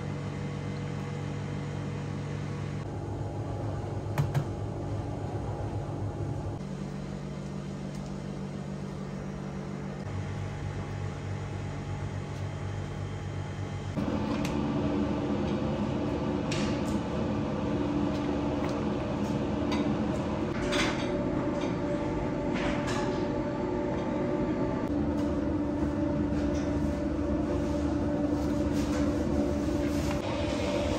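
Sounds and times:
kitchen machinery hum: 0.0s - 30.9s.

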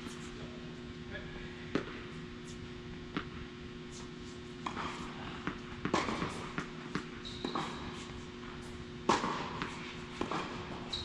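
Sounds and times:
steady low hum: 0.0s - 11.0s
ball bouncing: 3.1s - 3.4s, 5.4s - 7.8s
racket hitting tennis ball: 3.1s - 3.4s, 4.6s - 11.0s.

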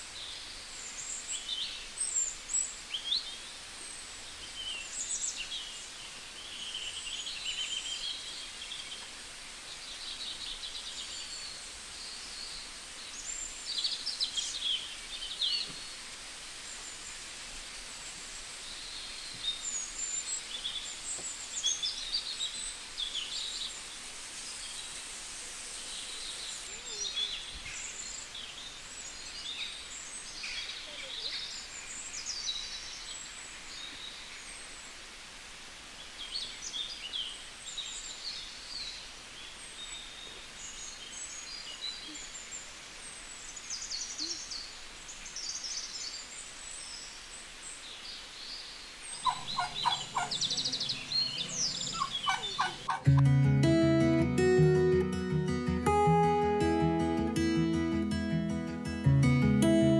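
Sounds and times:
steady outdoor hiss: 0.0s - 59.9s
birds chirping and singing: 49.1s - 53.2s
turkey gobbling: 49.2s - 53.1s
strummed acoustic guitar music: 52.8s - 59.9s.

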